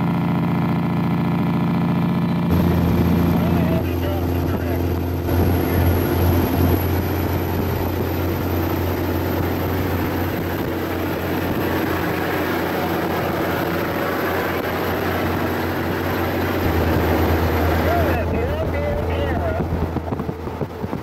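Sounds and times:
truck diesel engine drone: 0:00.0 - 0:21.0
tyre and wind noise: 0:19.0 - 0:21.0.

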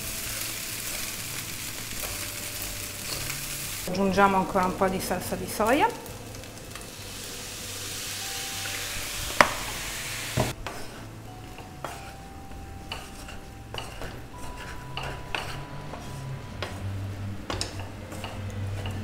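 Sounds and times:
rice sizzling in frying pan: 0:00.0 - 0:19.0
spatula scraping and knocking pan: 0:10.4 - 0:12.2, 0:12.8 - 0:19.0.

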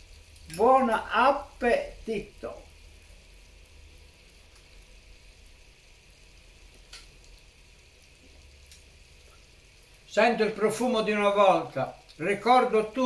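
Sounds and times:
low hiss and hum: 0:00.0 - 0:13.0.

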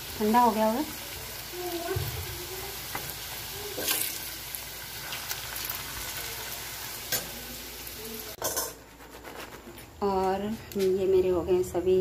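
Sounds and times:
potatoes sizzling in hot oil: 0:00.0 - 0:08.4.

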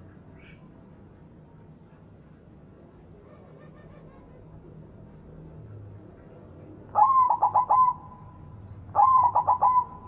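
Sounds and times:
dove cooing: 0:03.2 - 0:04.7, 0:07.0 - 0:08.3, 0:08.9 - 0:10.0.

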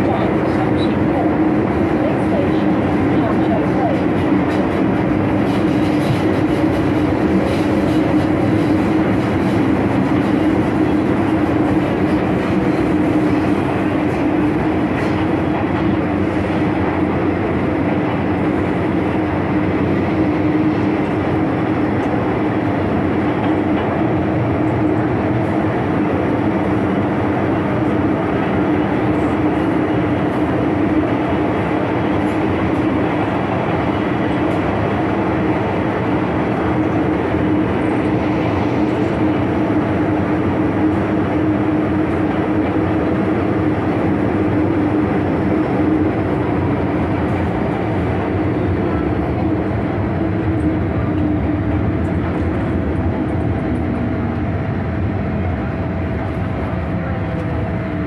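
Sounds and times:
train wheels rumbling: 0:00.0 - 0:58.0.

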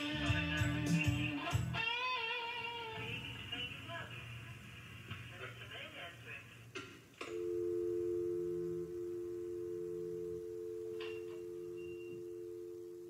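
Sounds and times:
electric guitar ringing tone: 0:07.3 - 0:13.0.

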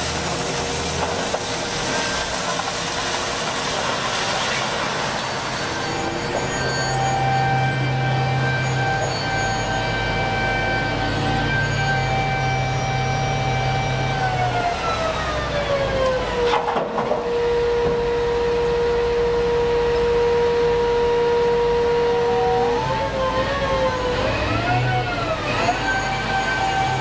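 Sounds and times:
high steady whine: 0:17.2 - 0:24.3.

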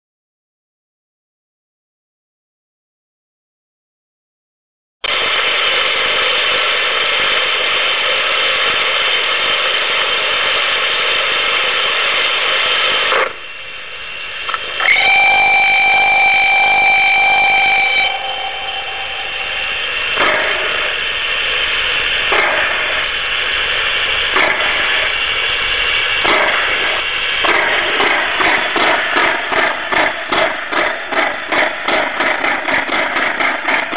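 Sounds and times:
steam engine idling sound: 0:05.0 - 0:33.9
steam exhaust chuffs: 0:05.0 - 0:33.9
steam whistle blast: 0:14.8 - 0:21.1.

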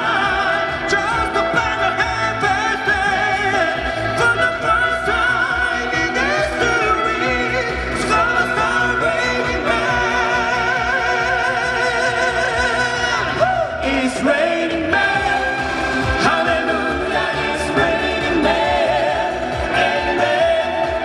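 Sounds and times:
man singing with vibrato: 0:00.0 - 0:21.0
backing accompaniment: 0:14.2 - 0:21.0.

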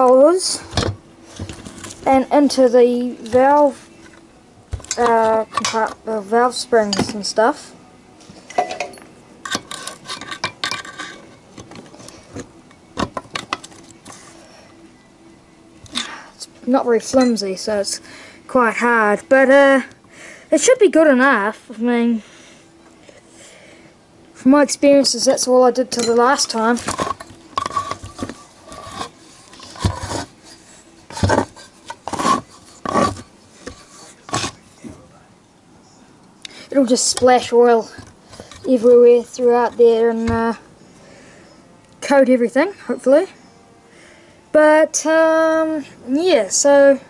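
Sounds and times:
metal parts clinking and scraping: 0:08.5 - 0:11.9
steel bar scraping metal: 0:09.4 - 0:11.4, 0:26.4 - 0:34.6.

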